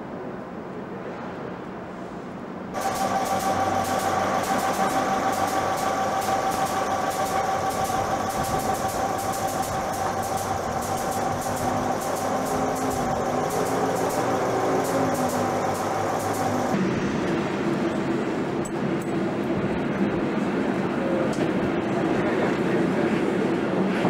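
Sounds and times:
constant whine: 2.7s - 23.5s
train machinery running: 2.7s - 24.0s
fast regular ticking: 2.8s - 16.8s.

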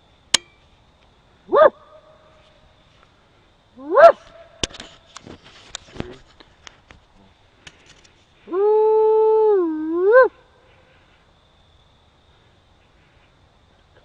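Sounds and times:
coyote howl: 1.5s - 2.2s, 3.8s - 4.3s, 8.5s - 10.5s.

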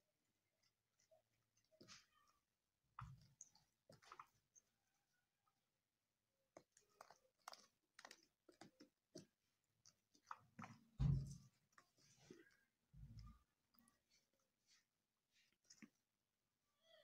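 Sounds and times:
low thump: 11.0s - 11.4s.

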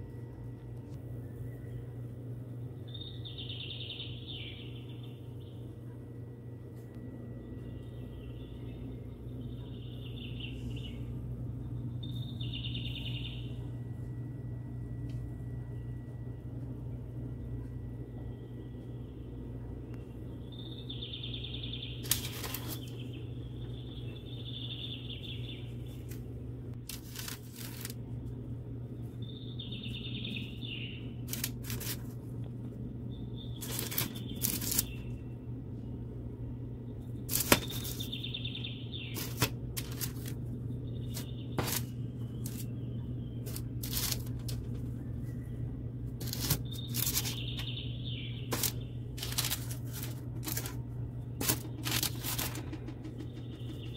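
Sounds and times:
steady low hum: 0.0s - 53.9s
parchment paper rustling: 22.0s - 23.1s, 25.7s - 28.0s, 31.3s - 32.3s, 33.6s - 35.0s, 37.3s - 38.2s, 39.2s - 40.4s, 41.0s - 42.7s, 43.4s - 44.9s, 46.2s - 47.7s, 48.5s - 53.8s.

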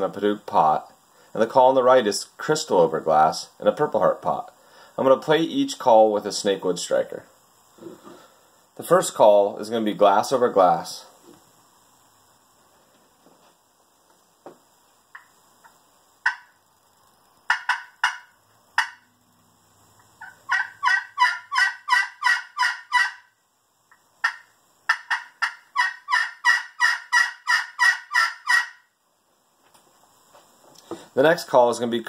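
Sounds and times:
turkey call clucks and yelps: 16.2s - 16.5s, 17.5s - 19.1s, 20.2s - 23.3s, 24.2s - 28.9s
turkey call yelp runs: 20.2s - 23.2s, 24.2s - 28.8s.

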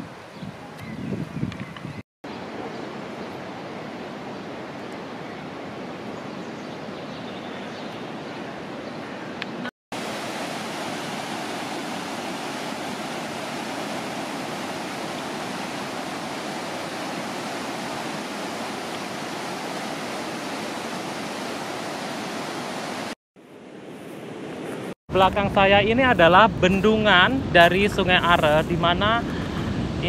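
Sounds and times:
river water rushing over weir: 10.0s - 23.2s.

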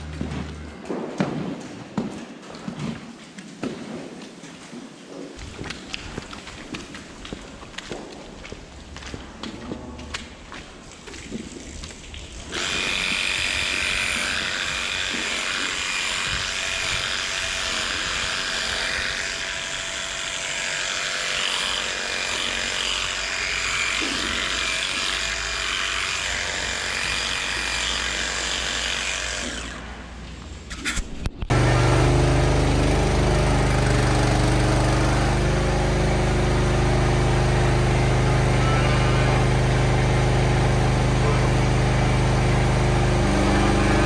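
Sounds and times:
electric hair clippers running: 12.5s - 29.8s, 31.5s - 44.0s.

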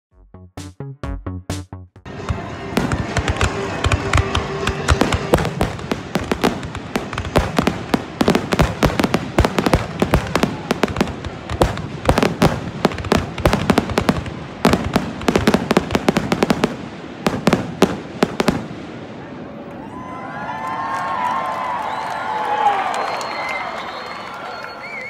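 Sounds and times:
fireworks bangs and crackles: 2.1s - 19.7s.

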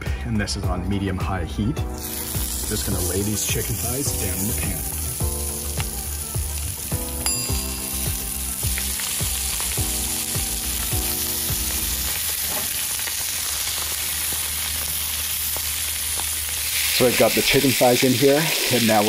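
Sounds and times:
chicken sizzling in a skillet: 2.0s - 19.0s
ringing musical notes: 7.1s - 11.6s.

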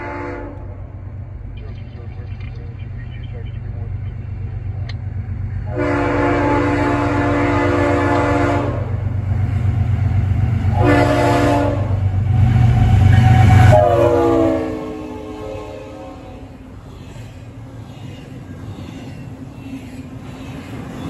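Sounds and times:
locomotive air horn blasts: 0.0s - 0.7s, 5.6s - 9.0s, 10.7s - 12.0s, 13.2s - 16.5s
diesel engine rumbling: 0.0s - 21.0s.

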